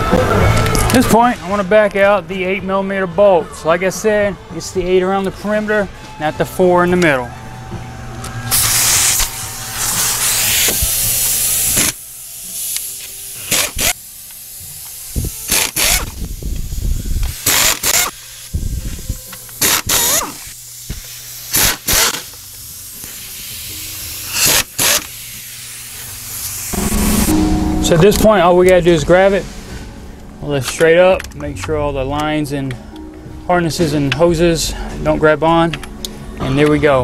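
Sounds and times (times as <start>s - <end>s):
exhaust air hissing: 8.0s - 30.4s
pneumatic air ratchet bursts: 8.5s - 18.7s, 19.3s - 26.8s.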